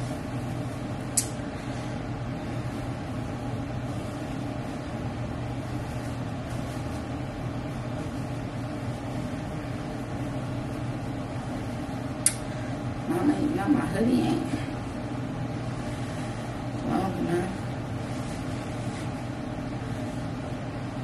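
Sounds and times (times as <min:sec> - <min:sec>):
low machine hum: 0:00.0 - 0:21.0
sharp click: 0:01.2 - 0:01.4, 0:12.2 - 0:12.4.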